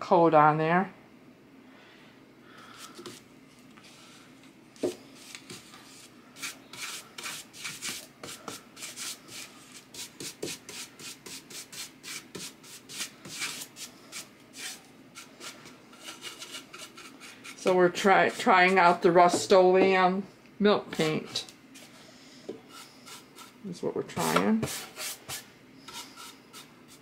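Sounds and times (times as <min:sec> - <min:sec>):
paintbrush strokes on wood: 0:05.0 - 0:19.4.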